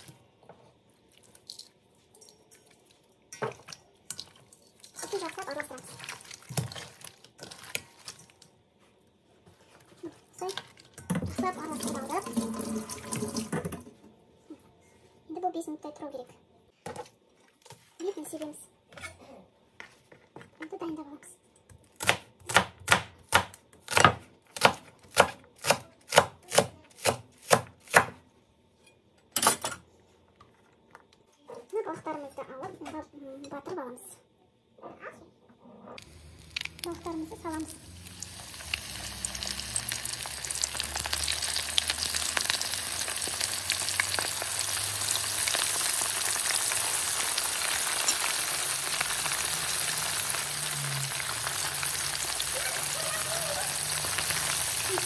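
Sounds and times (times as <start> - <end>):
hands squishing raw fish: 2.7 - 8.4
knife chopping on cutting board: 22.0 - 28.2.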